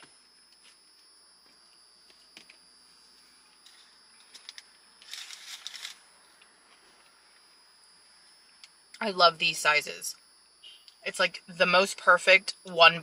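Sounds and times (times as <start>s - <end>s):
paper rustling and crinkling: 5.0s - 6.0s.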